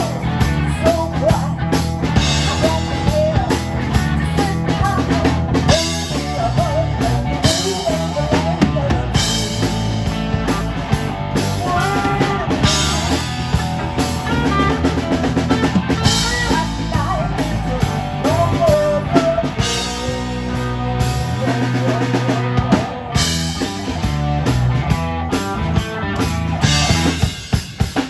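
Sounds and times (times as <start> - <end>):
drum kit: 0.0 - 28.0
electric guitars: 0.0 - 28.0
woman singing: 2.3 - 9.7, 15.9 - 23.0.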